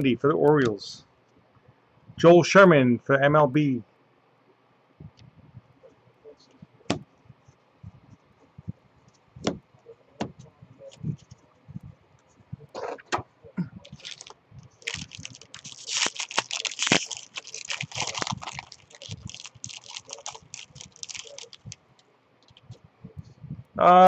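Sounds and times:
foil wrapper crinkling and tearing: 13.8s - 21.8s.

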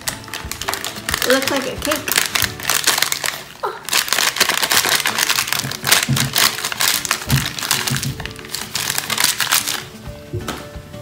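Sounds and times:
paper packet crinkling: 0.0s - 9.9s.

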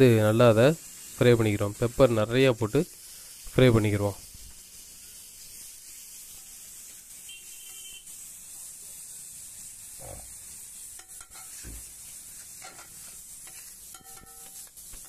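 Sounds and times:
food sizzling on a griddle: 0.0s - 15.0s
metal spatula scraping and tapping: 10.8s - 15.0s.

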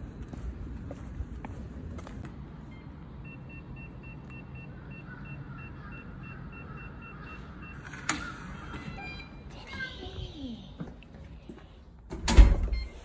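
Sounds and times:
crow cawing: 4.8s - 7.6s.

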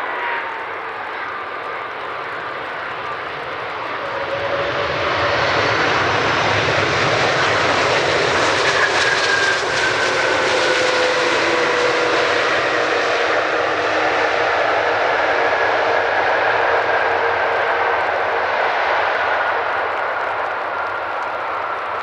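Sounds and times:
jet engines roaring: 0.0s - 22.0s.

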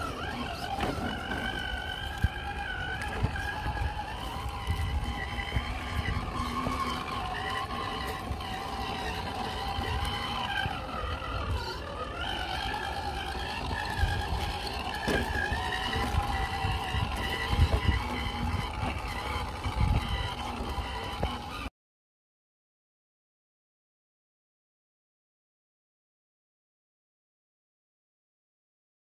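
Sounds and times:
rc crawler motor whining: 0.0s - 21.7s.

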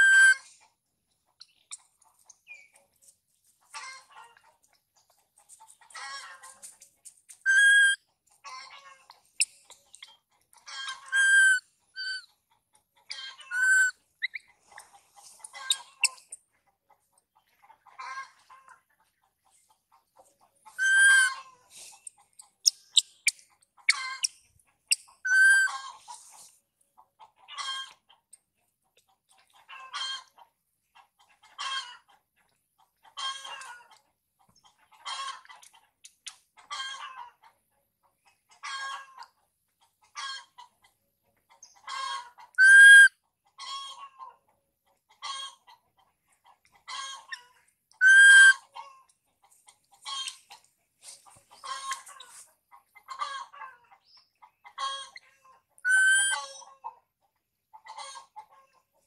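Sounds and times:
infant monkey crying: 11.1s - 12.2s, 13.6s - 13.9s, 20.8s - 21.4s, 25.3s - 25.7s, 42.6s - 43.1s.

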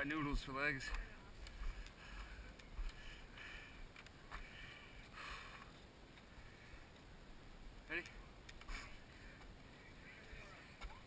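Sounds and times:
heavy labored breathing: 1.4s - 7.0s.

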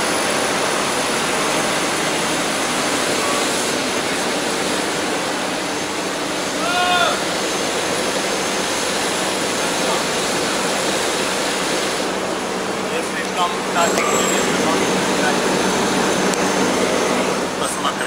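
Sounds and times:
diesel generators running: 0.0s - 18.0s
drilling rig running: 0.0s - 18.0s.

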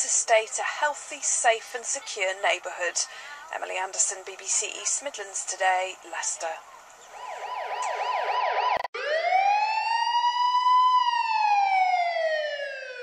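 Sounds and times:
emergency vehicle siren: 6.6s - 13.0s.

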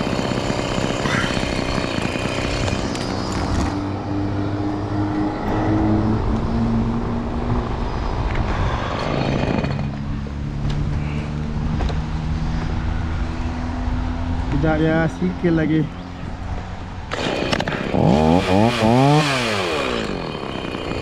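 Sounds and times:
chainsaw idling: 0.0s - 3.8s, 17.1s - 21.0s.

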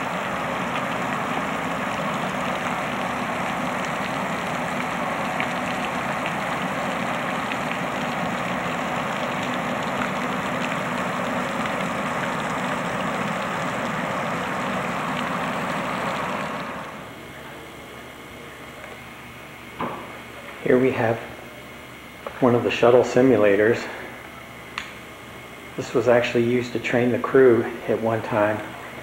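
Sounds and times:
fountain splashing: 0.0s - 17.0s.

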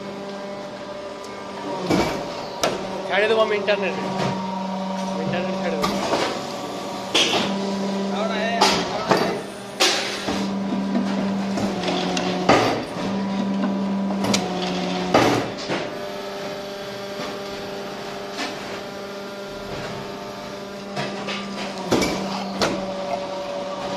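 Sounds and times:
motor hum: 0.0s - 23.9s.

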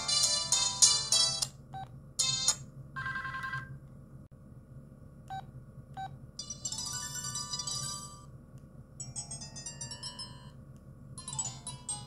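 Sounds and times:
polyphonic ringtone melody: 11.2s - 12.0s.

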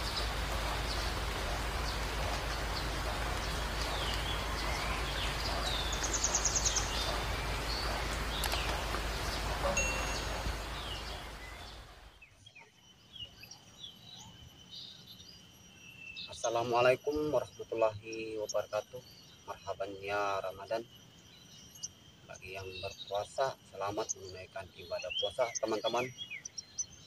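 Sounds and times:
thin high buzz: 0.0s - 12.0s
rattling bird trill: 0.0s - 12.1s
birds chirping: 0.0s - 27.0s
steady hiss: 0.0s - 27.0s.

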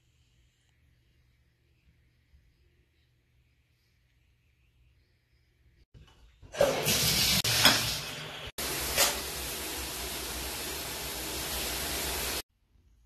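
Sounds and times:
shower water spraying: 6.6s - 12.4s.

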